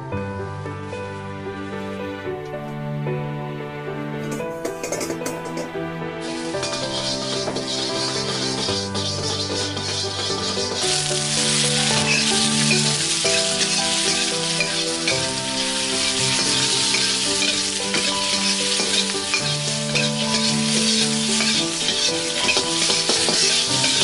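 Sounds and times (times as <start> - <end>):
spatula scraping wok: 4.2 - 24.0
food sizzling in hot oil: 4.7 - 24.0.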